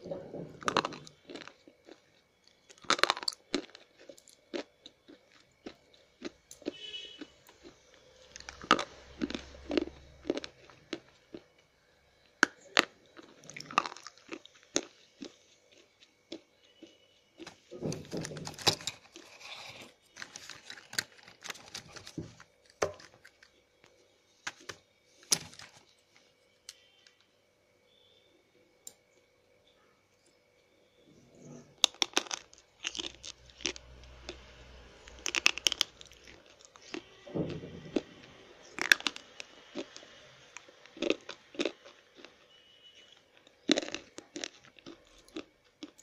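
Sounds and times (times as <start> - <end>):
pencils being chewed crunching: 0.1 - 26.9, 31.4 - 46.0.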